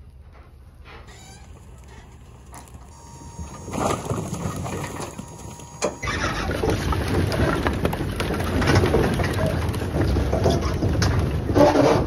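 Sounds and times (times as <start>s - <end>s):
firewood clattering onto pile: 3.7s - 12.0s.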